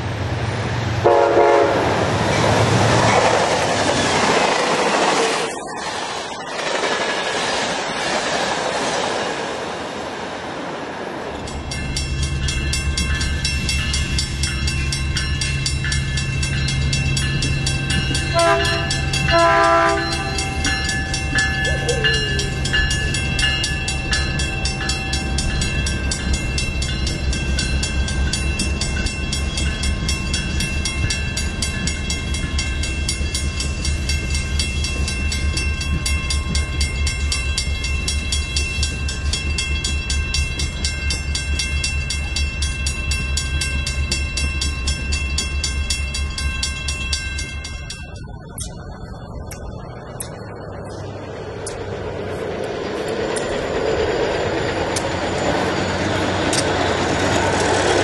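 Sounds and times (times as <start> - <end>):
train horn blasts: 1.0 - 2.0, 18.3 - 20.6
crossing warning bell: 1.0 - 4.0, 11.3 - 58.0
train wheels clattering on rails: 1.0 - 9.9, 11.3 - 58.0.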